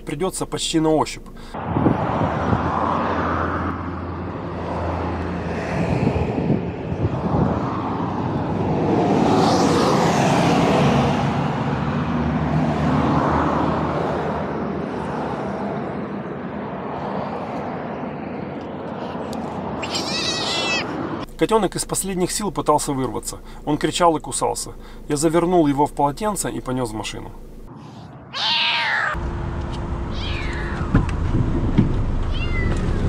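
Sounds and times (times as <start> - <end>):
cars passing on road: 0.0 - 33.0
kitten crying: 19.8 - 21.0, 28.3 - 29.2, 30.1 - 31.0, 32.3 - 33.0.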